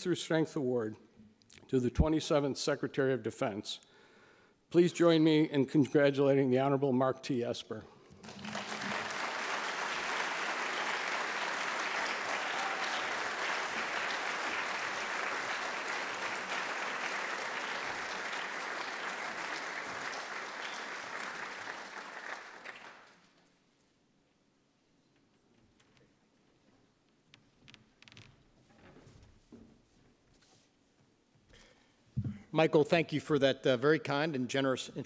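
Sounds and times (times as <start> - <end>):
audience applauding: 8.1 - 23.3.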